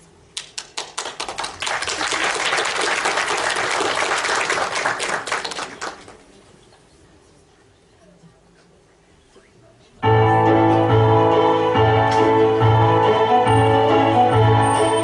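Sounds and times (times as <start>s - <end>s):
audience applauding: 0.4s - 6.3s.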